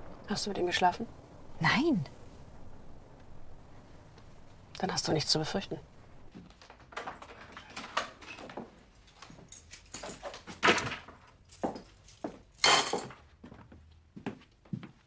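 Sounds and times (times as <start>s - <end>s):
footsteps: 6.0s - 15.0s.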